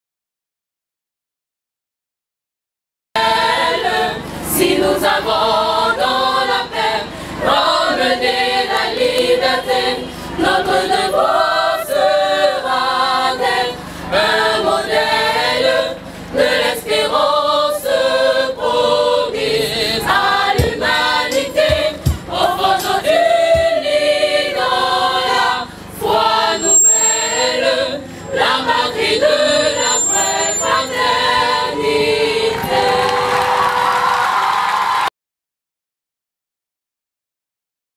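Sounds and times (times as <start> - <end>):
choir singing: 3.2 - 34.1.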